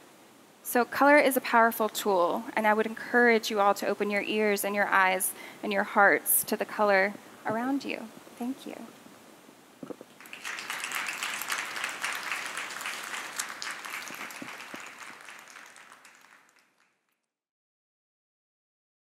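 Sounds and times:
audience applauding: 10.1 - 17.1.

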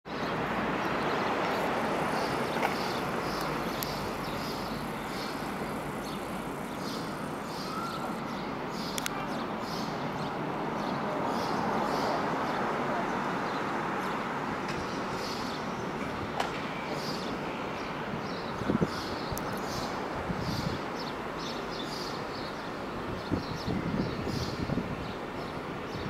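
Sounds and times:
city rumble: 0.1 - 26.0
distant subway train approaching: 0.3 - 8.7.

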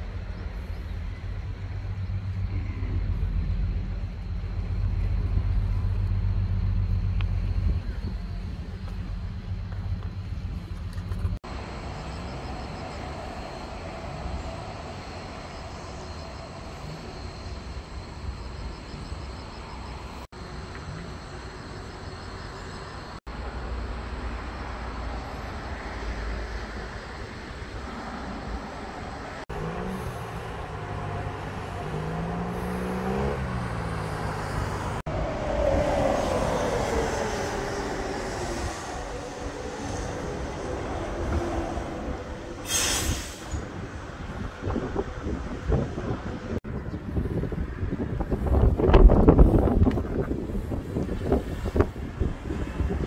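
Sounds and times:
road traffic: 0.0 - 53.0
vehicle passing by: 24.2 - 42.7
wind on microphone: 32.4 - 53.0
short sharp hiss: 42.6 - 43.6.

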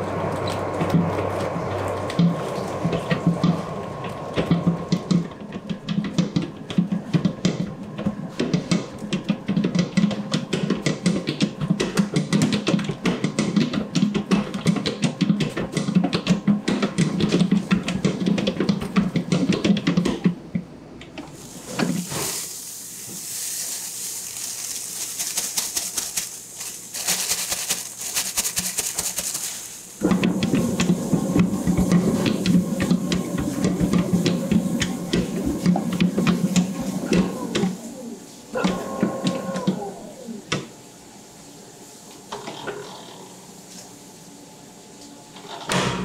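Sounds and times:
stand mixer churning dough: 0.0 - 20.2, 30.0 - 40.4
steady high hiss: 21.3 - 45.8.

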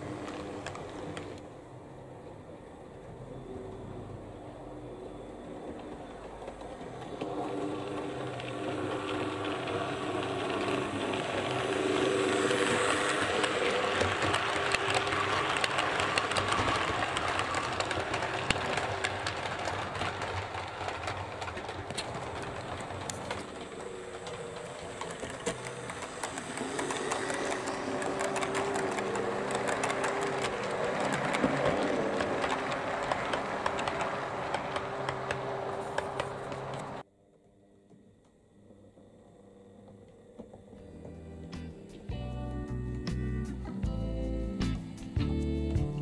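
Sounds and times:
wheels clicking over rail joints: 0.0 - 1.6, 4.8 - 37.0
model train motor whir: 5.7 - 37.0.

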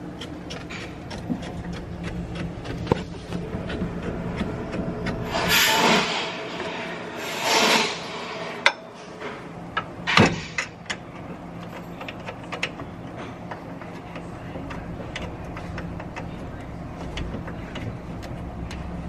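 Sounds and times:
metal parts scraping: 5.2 - 9.3.

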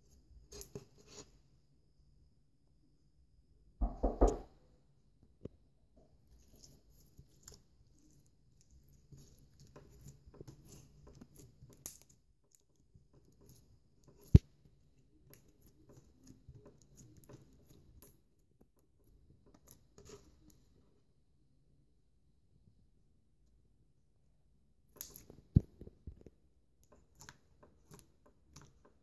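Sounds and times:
sharp knock: 3.8 - 4.5
slime squelching: 6.1 - 20.8, 24.9 - 29.0.

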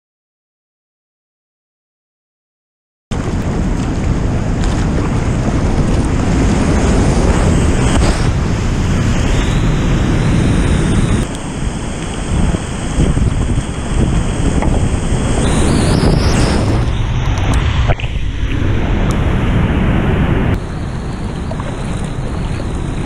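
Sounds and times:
wind buffeting microphone: 3.1 - 23.0
whitewater rapids rushing: 3.2 - 16.9.

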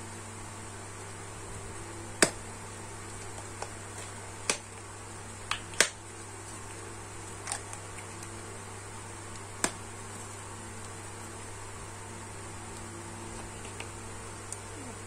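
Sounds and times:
steady low hum: 0.0 - 15.0
cardboard box clicks and taps: 9.6 - 9.8.

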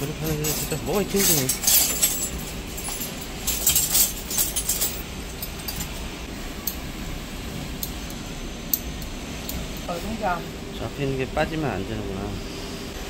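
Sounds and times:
metal tools clinking and scraping: 0.0 - 6.1
steady low hum: 0.0 - 13.0.

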